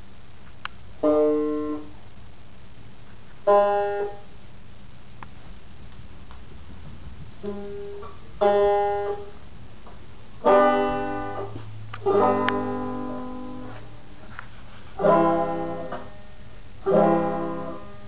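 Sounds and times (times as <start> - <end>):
banjo chords strummed: 10.4 - 13.4, 15.0 - 16.1, 16.9 - 17.8.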